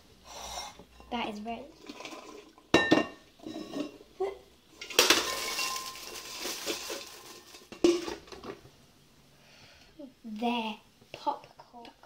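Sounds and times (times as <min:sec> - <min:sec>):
popcorn pouring out: 0:04.8 - 0:08.4.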